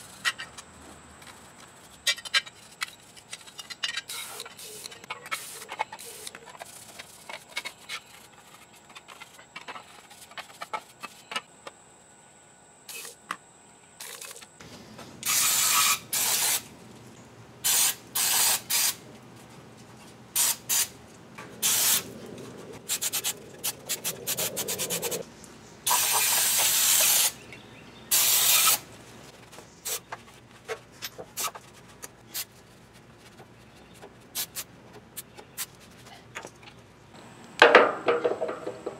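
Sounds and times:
aerosol spray can hissing: 15.2s - 16.6s, 17.7s - 19.0s, 25.9s - 27.4s, 28.1s - 28.8s.

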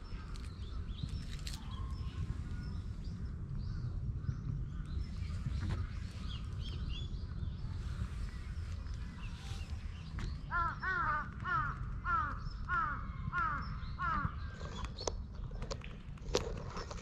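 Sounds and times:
low background rumble: 0.0s - 17.0s
crow cawing: 10.5s - 14.4s.

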